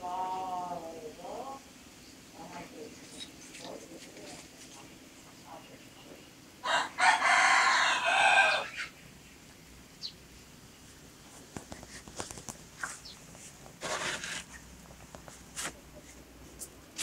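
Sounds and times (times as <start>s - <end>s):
cockerel crowing: 6.6s - 9.0s
faint clicks and rustles: 11.2s - 17.0s.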